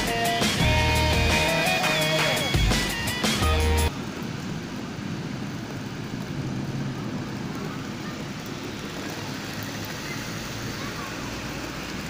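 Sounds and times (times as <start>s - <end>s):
background music: 0.0s - 3.9s
outdoor noise on wet street: 0.0s - 12.0s.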